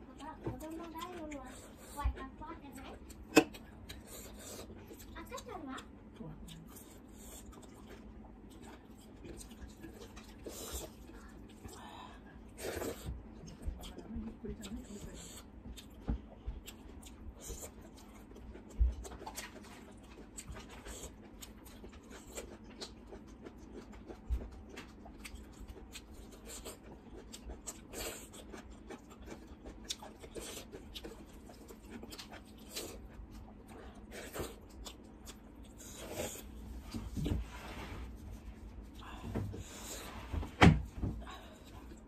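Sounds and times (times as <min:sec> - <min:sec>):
person chewing: 0:00.1 - 0:14.0, 0:14.6 - 0:37.4.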